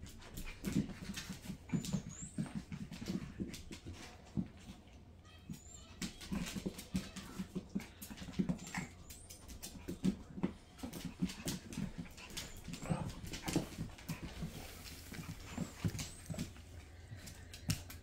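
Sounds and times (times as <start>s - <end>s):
dogs grunting and growling: 12.3s - 13.8s.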